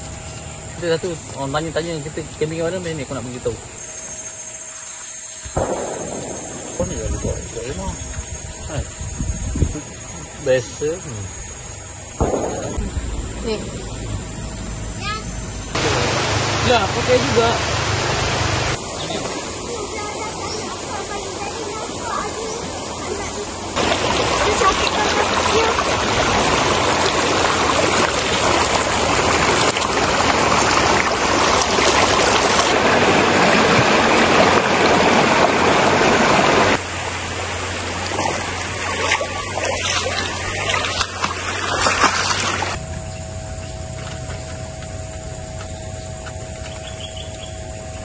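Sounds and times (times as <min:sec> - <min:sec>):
faint steady hum: 0:00.0 - 0:48.0
river water rushing over rocks: 0:15.8 - 0:19.4, 0:23.8 - 0:36.8, 0:38.0 - 0:42.8.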